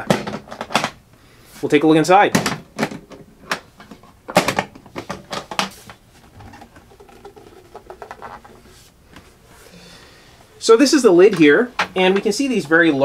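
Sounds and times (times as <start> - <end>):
knocks and scraping of lid: 3.9 - 8.6.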